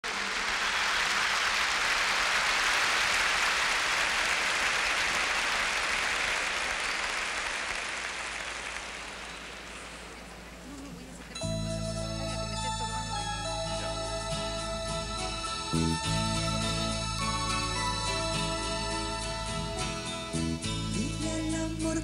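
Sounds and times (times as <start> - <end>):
audience applause: 0.0 - 11.2.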